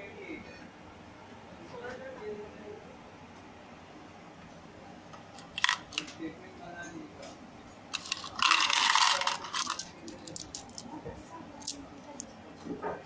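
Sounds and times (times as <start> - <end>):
coins jingling clatter: 5.4 - 6.0, 8.0 - 10.9
coins clinking in hand: 5.4 - 6.1, 8.0 - 10.9.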